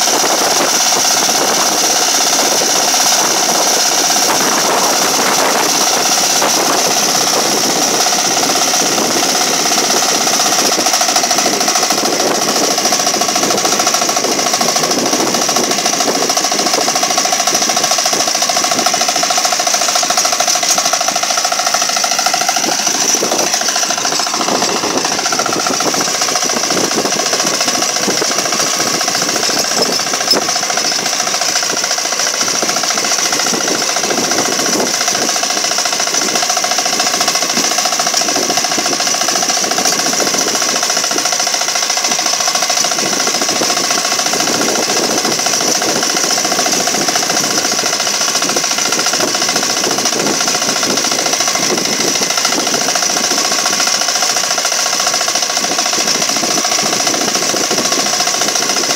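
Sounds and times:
power tiller engine running: 0:00.0 - 0:58.9
tines churning through soil: 0:00.0 - 0:58.9.

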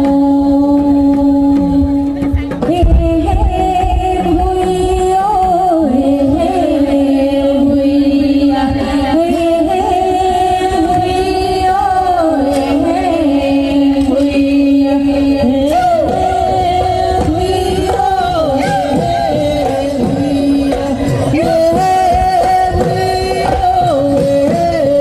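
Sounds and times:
person singing folk song: 0:00.0 - 0:25.0
dense low drumming: 0:01.8 - 0:05.5.

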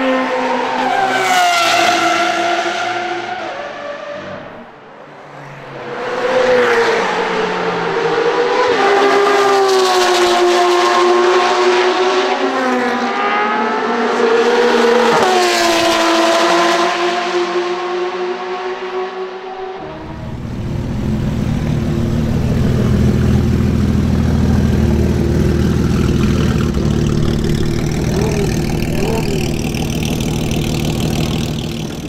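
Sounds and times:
sports car engine accelerating past: 0:00.0 - 0:32.0
sports car engine shifting up: 0:19.7 - 0:32.0.

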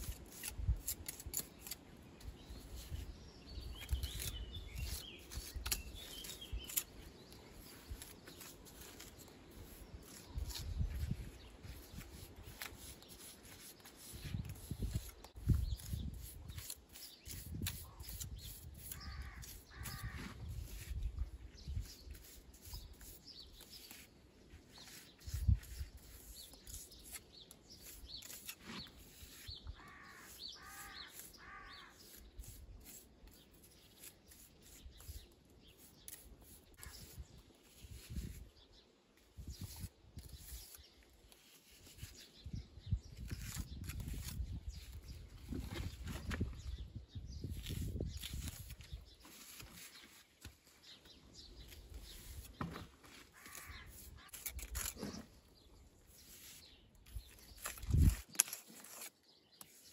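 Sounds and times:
crows cawing: 0:19.0 - 0:20.3, 0:29.8 - 0:32.0, 0:53.4 - 0:54.0.

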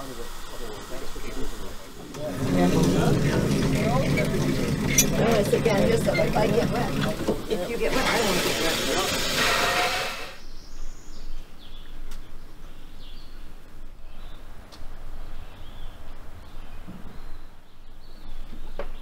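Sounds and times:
loud steam hiss: 0:00.0 - 0:10.4.

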